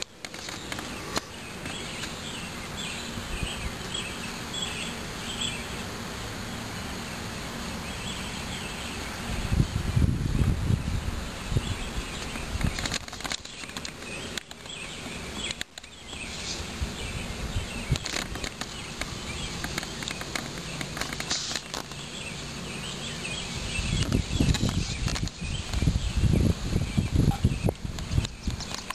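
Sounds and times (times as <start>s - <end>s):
steady hiss: 0.0s - 28.9s
low rumbling on microphone: 9.0s - 12.8s, 23.5s - 28.6s.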